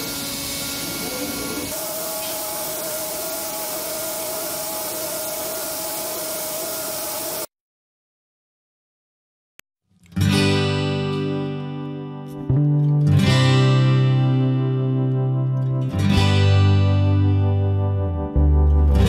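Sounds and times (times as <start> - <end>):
milling machine hiss: 0.0 - 7.5
spindle and cutter whine: 0.0 - 7.5.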